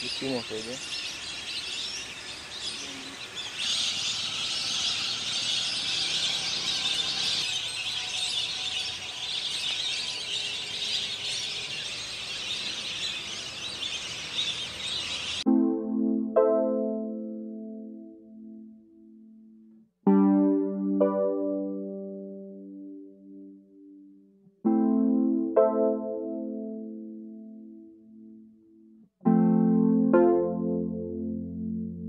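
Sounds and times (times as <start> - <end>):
piano note: 15.5 - 28.5.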